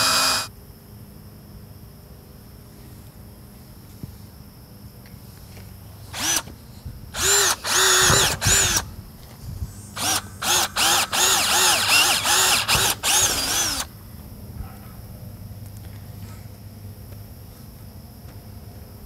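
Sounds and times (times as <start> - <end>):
cordless drill drilling steel: 0.0 - 0.5, 6.2 - 6.5, 7.2 - 8.8, 10.0 - 13.9.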